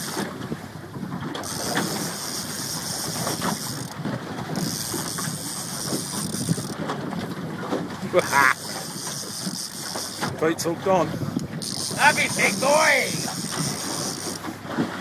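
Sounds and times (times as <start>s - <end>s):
wind rumbling on microphone: 0.0s - 15.0s
fishing reel clicking: 1.4s - 6.8s, 8.2s - 10.4s, 11.4s - 14.5s.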